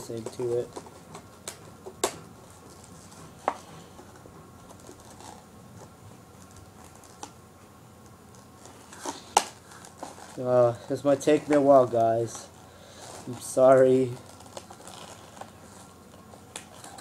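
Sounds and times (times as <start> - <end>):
cardboard packaging clicks and scrapes: 8.3 - 17.0.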